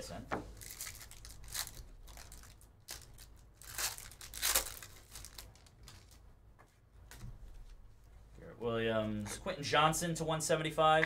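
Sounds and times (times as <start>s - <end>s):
foil wrapper tearing and crinkling: 0.6s - 6.2s.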